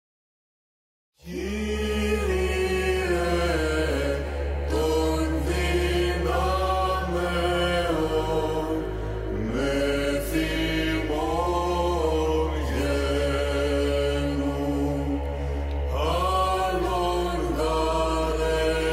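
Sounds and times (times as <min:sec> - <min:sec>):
choir chanting melody: 0:01.2 - 0:18.9
low held vocal drone: 0:01.2 - 0:18.9.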